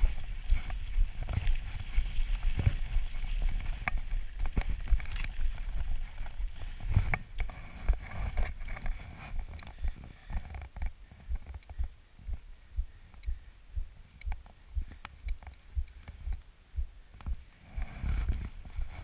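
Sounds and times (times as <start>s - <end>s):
bike tyres on loose dirt: 0.0s - 12.0s.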